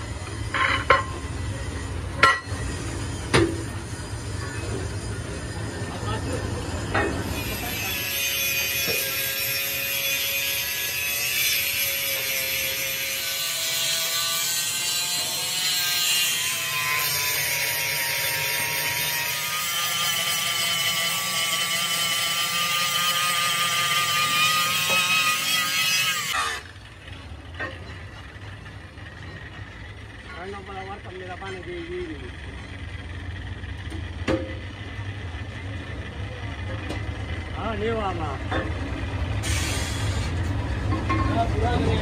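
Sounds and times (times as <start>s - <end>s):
angle grinder grinding steel: 3.8s - 26.8s.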